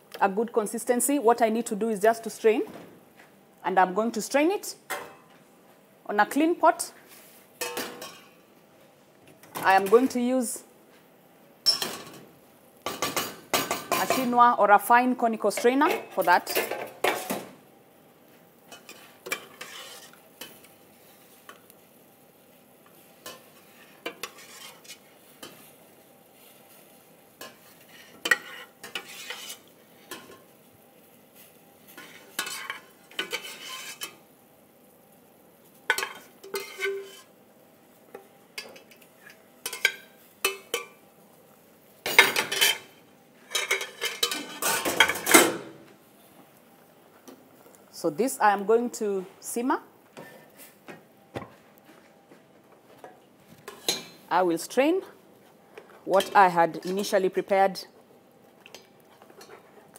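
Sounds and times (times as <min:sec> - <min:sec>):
ladle scraping steel pots: 0:18.7 - 0:20.2, 0:23.2 - 0:25.1, 0:27.4 - 0:30.4, 0:32.0 - 0:34.2, 0:35.9 - 0:37.3, 0:43.5 - 0:45.6.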